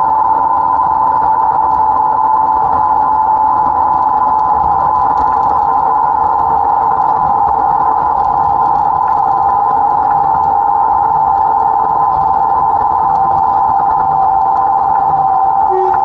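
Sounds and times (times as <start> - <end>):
high whine: 9.0 - 16.0
diesel locomotive engine running: 15.5 - 16.0.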